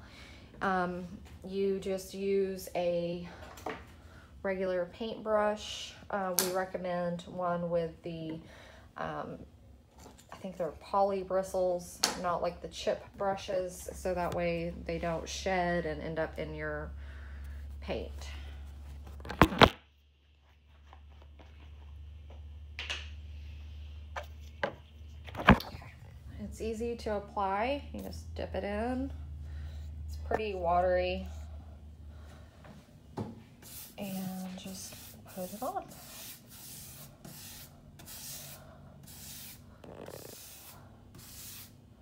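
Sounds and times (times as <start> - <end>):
steady low hum: 20.1 - 42.0
paintbrush swishing on wood: 33.6 - 41.7.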